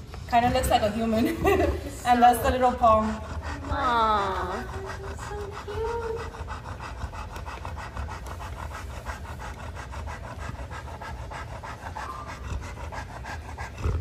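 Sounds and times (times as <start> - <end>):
dog panting quickly: 0.0 - 14.0.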